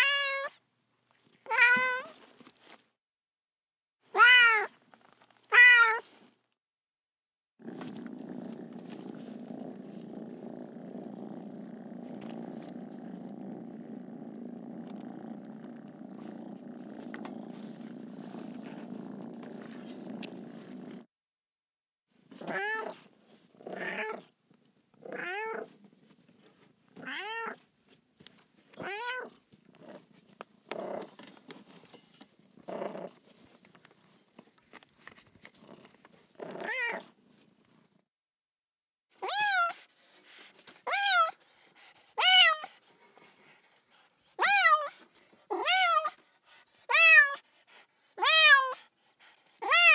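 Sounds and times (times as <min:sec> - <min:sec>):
cat meowing: 0:00.0 - 0:00.6, 0:01.5 - 0:02.2, 0:04.1 - 0:04.7, 0:05.5 - 0:06.0, 0:22.4 - 0:23.0, 0:28.8 - 0:29.3, 0:39.2 - 0:39.8, 0:45.5 - 0:46.1, 0:46.9 - 0:47.4, 0:48.2 - 0:48.8, 0:49.6 - 0:49.9
cat purring: 0:07.6 - 0:21.1, 0:29.2 - 0:34.3.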